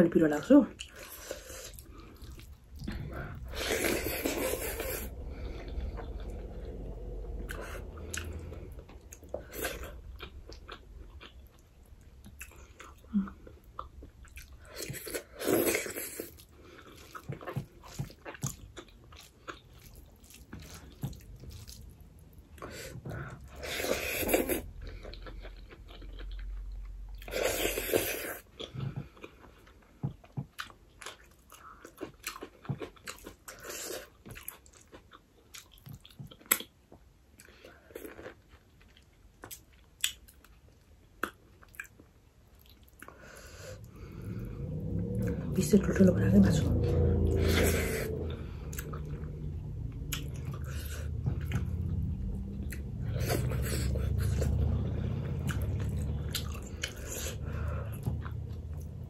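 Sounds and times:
person chewing with lip-smacking: 0.7 - 6.6, 7.4 - 44.4, 47.1 - 59.0
breathy sounds: 1.2 - 10.2, 43.1 - 45.6, 46.7 - 59.0.

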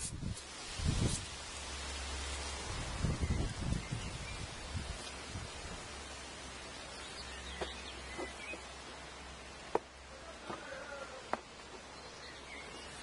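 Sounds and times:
faint outdoor hiss: 0.0 - 13.0.

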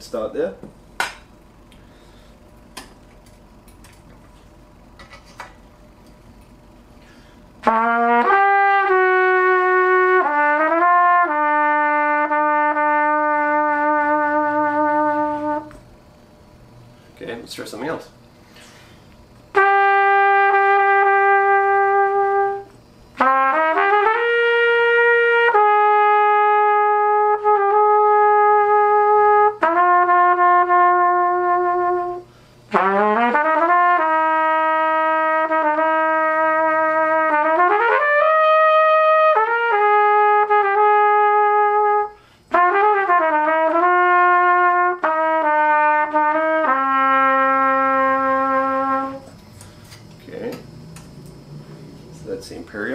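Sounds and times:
solo trumpet playing: 7.6 - 15.8, 19.5 - 49.4.

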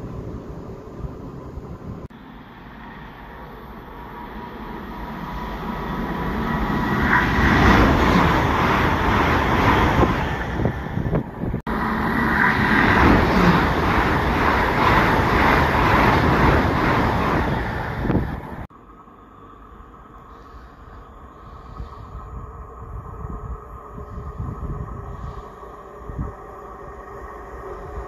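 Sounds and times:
train rushing past: 0.0 - 18.7.

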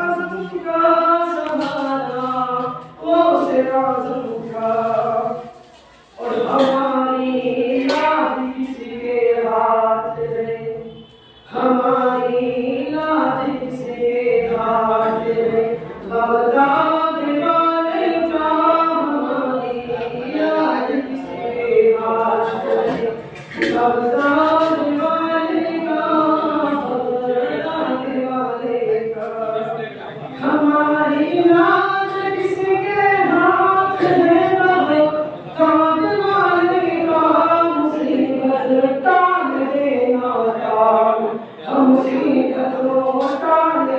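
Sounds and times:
man singing unaccompanied: 11.5 - 43.9.

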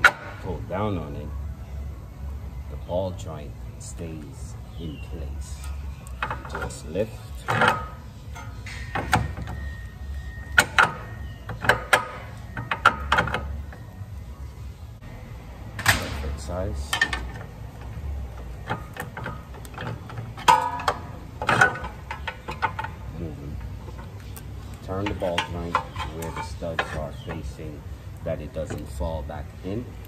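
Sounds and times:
metal clicks and knocks: 5.6 - 9.8, 10.4 - 13.8, 15.8 - 27.5.

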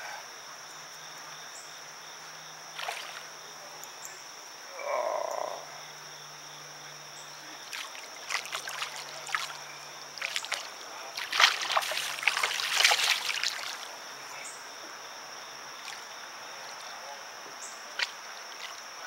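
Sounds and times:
fish splashing in water: 2.8 - 3.3, 7.6 - 13.9.

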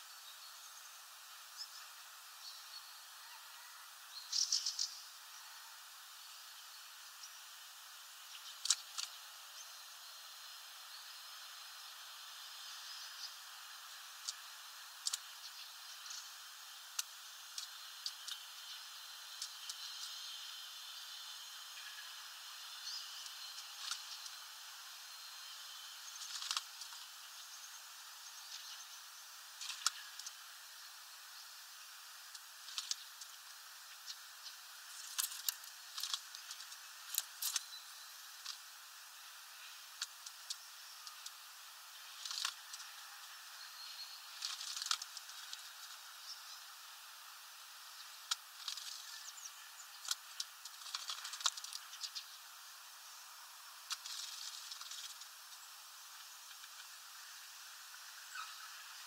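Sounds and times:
steady background hiss: 0.0 - 59.0
wings fluttering: 26.0 - 27.2, 32.6 - 37.6, 42.0 - 43.3, 44.3 - 46.1, 48.3 - 49.3, 49.9 - 52.2, 53.8 - 55.4.

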